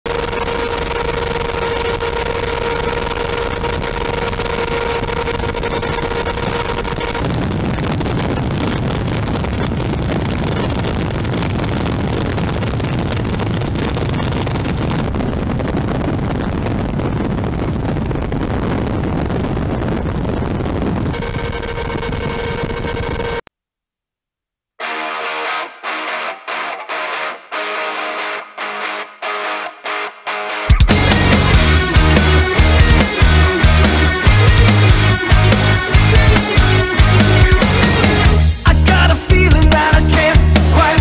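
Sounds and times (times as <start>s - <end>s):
engine drone: 0.1s - 23.4s, 30.9s - 41.0s
wind noise: 0.1s - 23.4s
steady whine: 0.1s - 23.5s, 30.7s - 41.0s
rough low rumble: 1.5s - 23.2s.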